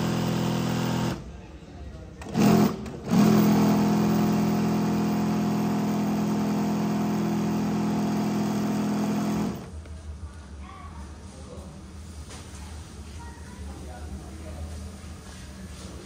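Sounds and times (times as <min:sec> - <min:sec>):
motor humming: 0:02.2 - 0:09.7.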